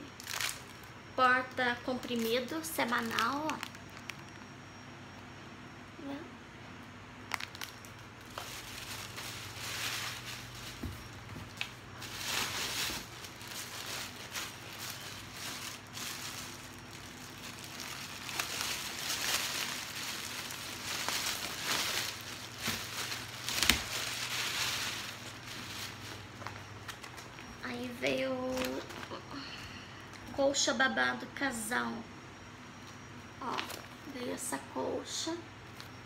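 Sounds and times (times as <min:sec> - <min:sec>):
plastic packaging crinkling: 0:00.0 - 0:04.6, 0:07.2 - 0:29.2.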